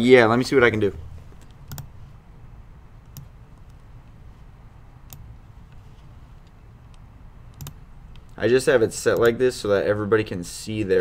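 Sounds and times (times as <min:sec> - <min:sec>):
faint low hum: 0:00.0 - 0:11.0
computer mouse clicks: 0:01.4 - 0:01.9, 0:03.0 - 0:03.9, 0:05.0 - 0:05.8, 0:06.4 - 0:08.4.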